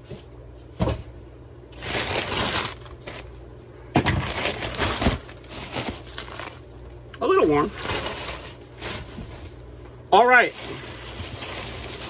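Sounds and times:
newspaper crumpling and rustling: 0:01.7 - 0:03.4, 0:04.1 - 0:09.7, 0:10.3 - 0:12.0.

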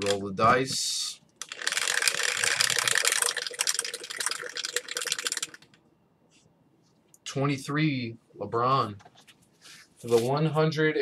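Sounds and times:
dice rattling in plastic dome: 0:01.4 - 0:05.8.

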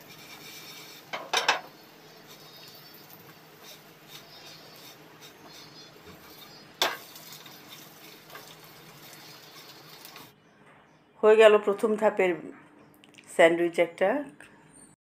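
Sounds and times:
spatula tapping and scraping: 0:00.0 - 0:10.3
toast sizzling in butter: 0:00.0 - 0:10.3.

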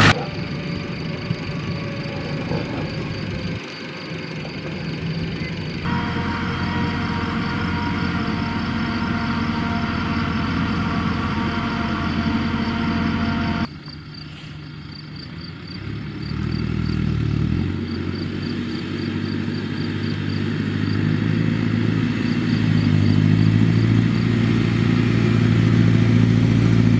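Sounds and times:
tractor diesel engine running: 0:00.0 - 0:26.9.

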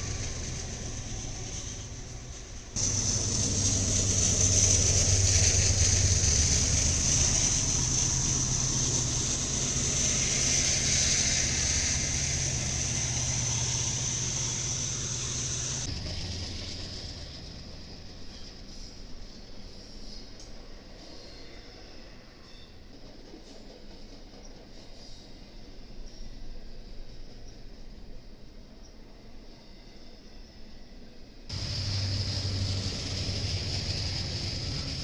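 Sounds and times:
diesel locomotives droning: 0:00.0 - 0:22.9, 0:31.2 - 0:35.0
rushing noise of rolling train: 0:00.0 - 0:35.0.

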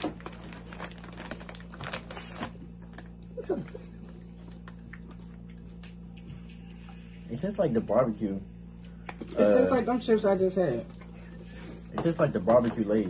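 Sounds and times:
potato chips crunching: 0:00.0 - 0:06.0.

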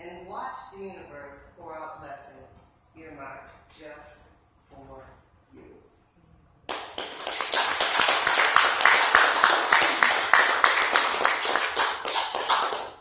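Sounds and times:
audience applauding: 0:06.7 - 0:13.0
person clapping close by: 0:06.7 - 0:13.0.

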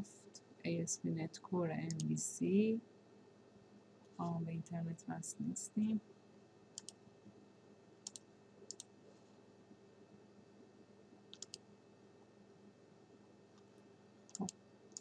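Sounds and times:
faint computer mouse clicks: 0:06.8 - 0:07.0, 0:08.0 - 0:08.9, 0:11.3 - 0:11.6.

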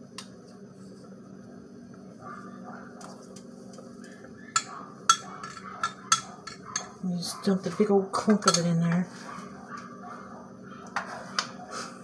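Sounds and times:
low steady hum: 0:00.0 - 0:12.0
metal spoon stirring in glass: 0:04.0 - 0:07.0
spoon clinking against glass: 0:04.6 - 0:07.0.

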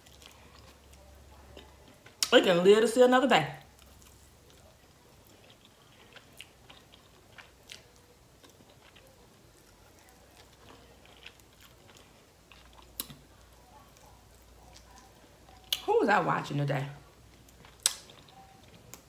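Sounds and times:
person chewing: 0:00.0 - 0:02.3, 0:03.7 - 0:15.8, 0:17.3 - 0:19.0.

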